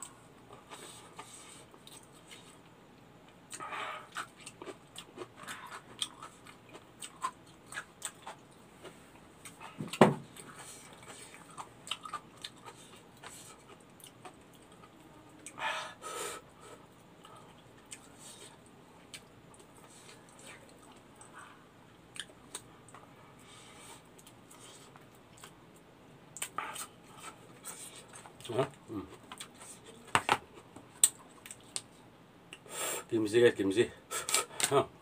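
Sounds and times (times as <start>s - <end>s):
person chewing food: 0.5s - 2.7s, 3.3s - 15.6s, 16.6s - 25.6s, 26.4s - 31.9s.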